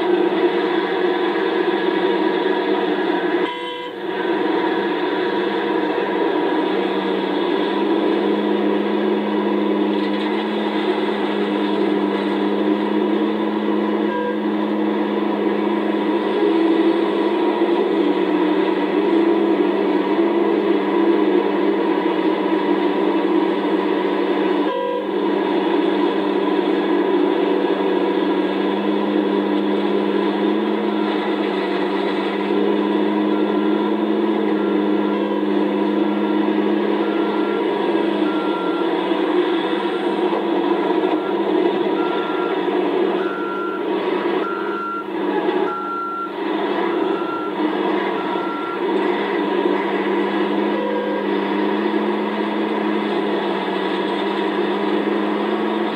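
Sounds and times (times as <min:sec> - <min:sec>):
excavator diesel engine droning: 0:00.0 - 0:55.9
backup alarm beeping: 0:44.4 - 0:47.6.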